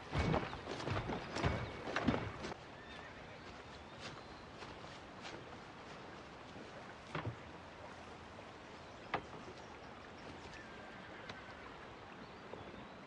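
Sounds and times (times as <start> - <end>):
river water flowing: 0.0 - 13.0.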